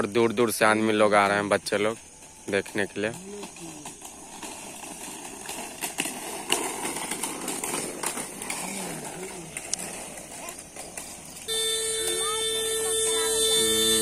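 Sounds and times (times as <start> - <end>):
steady rough hiss: 0.0 - 14.0
children chattering: 6.9 - 14.0.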